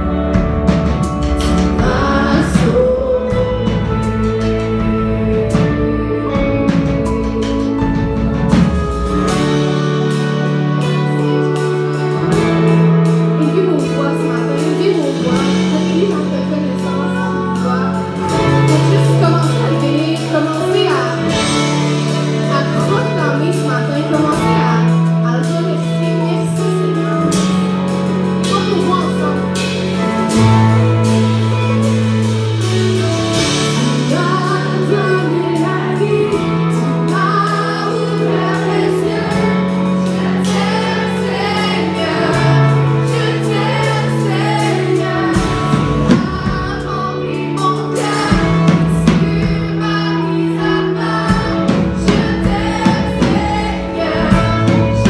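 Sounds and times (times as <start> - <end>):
drums: 0.0 - 55.0
guitar: 0.0 - 55.0
keyboard: 0.0 - 55.0
long held bass notes: 0.0 - 55.0
women singing into microphones: 1.4 - 8.2, 33.4 - 55.0.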